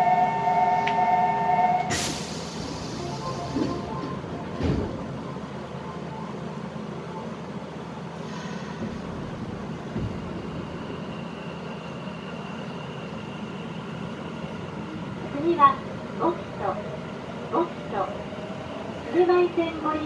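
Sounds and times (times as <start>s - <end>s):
train wheels rumbling: 0.0s - 7.0s, 7.7s - 20.0s
thumps in train car: 3.5s - 5.1s, 9.8s - 10.5s.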